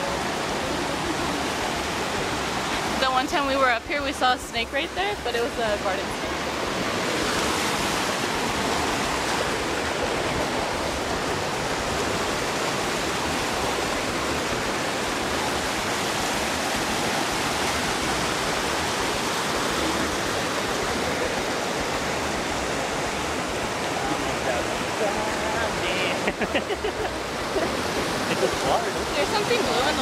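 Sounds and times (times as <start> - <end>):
river water rushing over rocks: 0.0 - 30.0.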